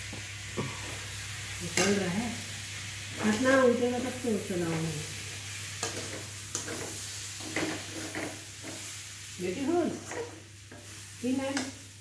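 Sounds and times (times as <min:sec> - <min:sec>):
frying sizzle: 0:00.0 - 0:12.0
spatula scraping pan: 0:05.6 - 0:09.0, 0:09.6 - 0:11.7.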